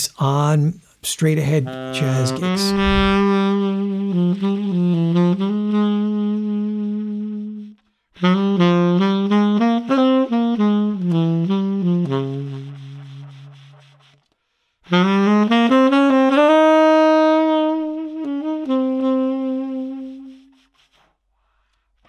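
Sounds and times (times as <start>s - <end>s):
tenor saxophone jazz line: 1.4s - 14.2s, 14.9s - 20.6s
player breathing: 21.4s - 22.0s.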